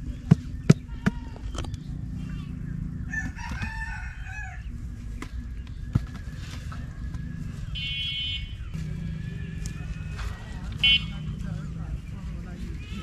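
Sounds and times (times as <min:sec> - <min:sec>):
rooster crowing: 0:03.1 - 0:04.7, 0:09.0 - 0:11.1
low rumble: 0:04.5 - 0:13.0.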